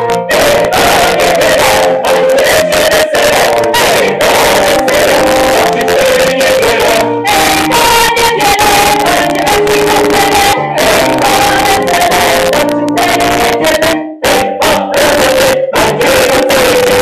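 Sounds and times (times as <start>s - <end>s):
mixed choir singing in harmony: 0.0s - 17.0s.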